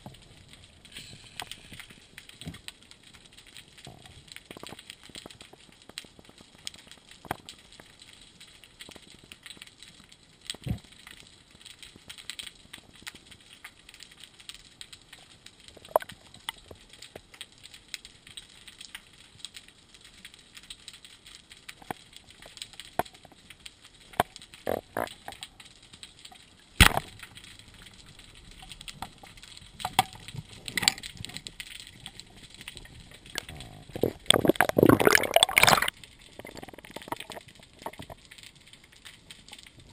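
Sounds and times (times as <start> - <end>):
underwater clicks and crackles: 0.0 - 39.9
rushing splashing water: 34.0 - 38.0.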